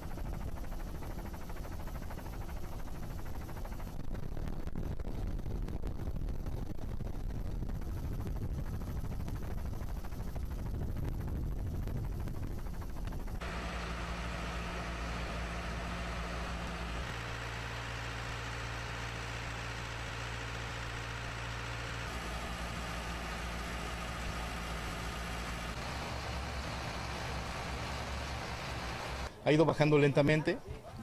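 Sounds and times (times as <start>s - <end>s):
engine idling: 0.0s - 4.8s, 11.6s - 29.3s.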